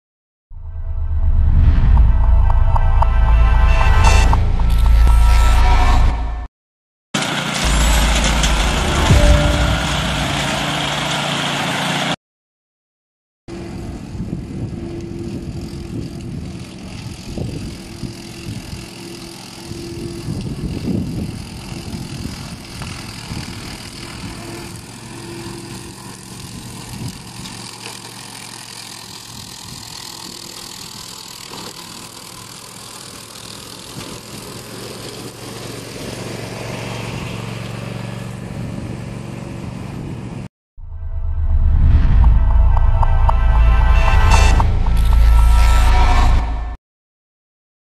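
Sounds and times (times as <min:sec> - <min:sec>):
brush mower engine running: 0:07.2 - 0:12.1, 0:13.5 - 0:40.4.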